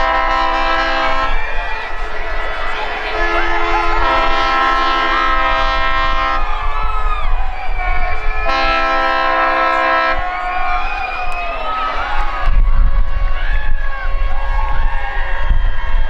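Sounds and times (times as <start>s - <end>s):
boat horn blasts: 0.0s - 1.4s, 2.3s - 6.5s, 8.4s - 10.3s.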